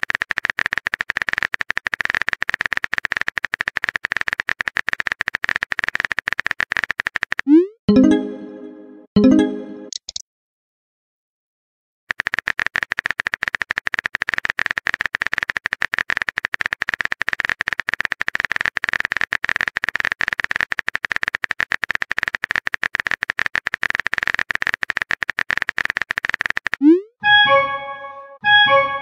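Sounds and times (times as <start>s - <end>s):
keyboard typing clicks: 9.2s - 10.2s, 12.1s - 27.0s.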